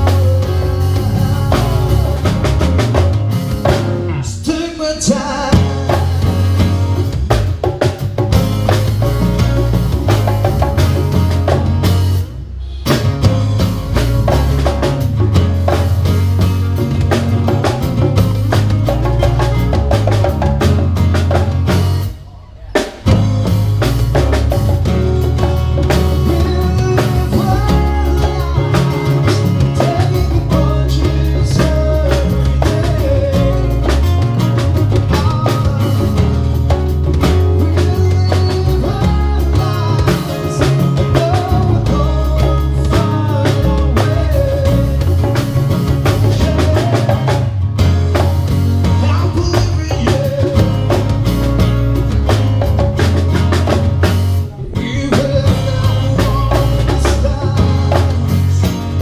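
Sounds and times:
man singing: 0.0s - 3.2s, 4.0s - 7.0s, 25.9s - 47.6s, 48.9s - 51.2s, 54.5s - 59.0s
acoustic guitars strumming: 0.0s - 59.0s
congas: 0.0s - 59.0s.

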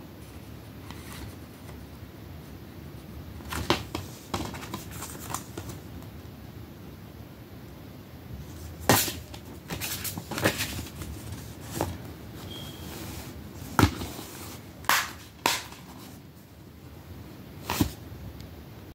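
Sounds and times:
low hiss: 0.0s - 18.9s.

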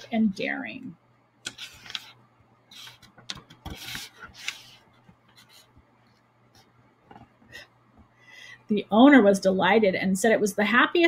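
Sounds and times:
book page turning: 1.5s - 5.7s.

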